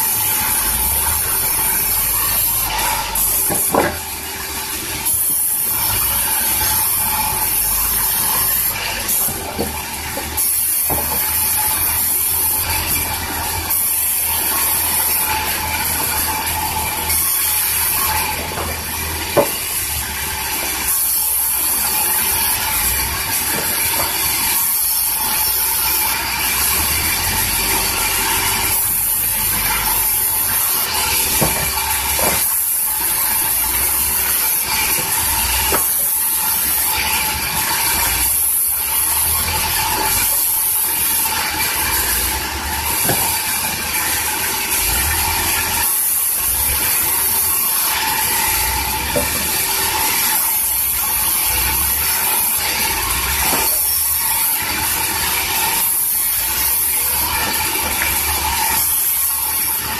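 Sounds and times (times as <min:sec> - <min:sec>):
band saw whine: 0:00.0 - 0:59.9.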